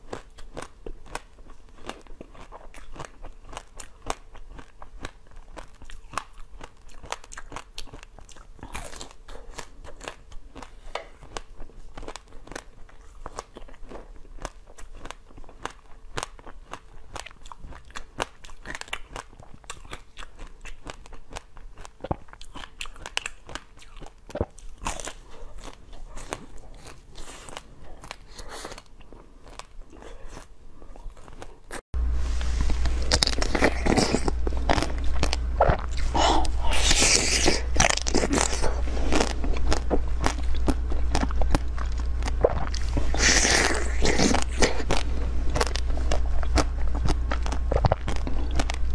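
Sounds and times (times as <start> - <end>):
crunching and chewing frozen treat: 0.0 - 31.8, 32.5 - 48.9
mouth sounds biting jelly: 0.0 - 31.8, 32.8 - 48.9.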